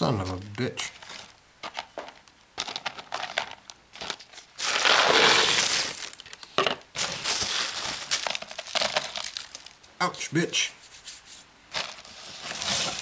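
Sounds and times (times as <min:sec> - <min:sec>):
plastic bag crinkling: 0:00.2 - 0:09.9, 0:11.7 - 0:13.0
pellets sliding out of tub: 0:04.6 - 0:06.2, 0:07.0 - 0:08.3, 0:11.7 - 0:13.0
ice pellets rattling in plastic tub: 0:07.0 - 0:09.7.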